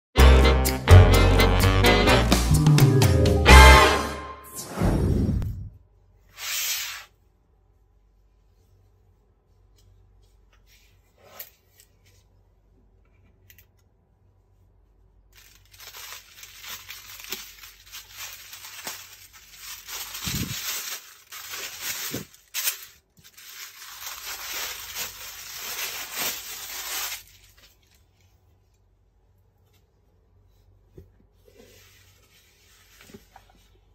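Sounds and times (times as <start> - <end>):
tissue paper rustling and crinkling: 15.3 - 28.4.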